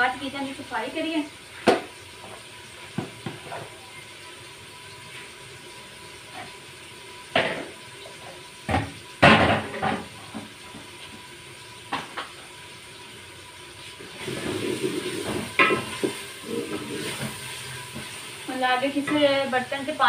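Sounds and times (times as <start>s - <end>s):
onions sizzling: 0.0s - 20.0s
kitchen utensils clattering: 8.7s - 10.4s.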